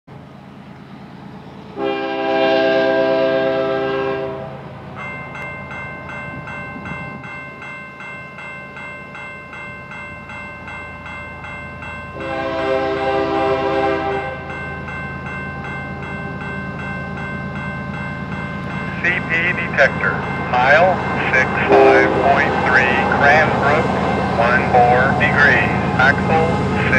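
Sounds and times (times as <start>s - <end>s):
locomotive air horn blasts: 1.8s - 4.6s, 12.2s - 14.5s, 21.6s - 22.5s
crossing warning bell ringing: 1.8s - 26.9s
locomotive rumble: 10.2s - 26.9s.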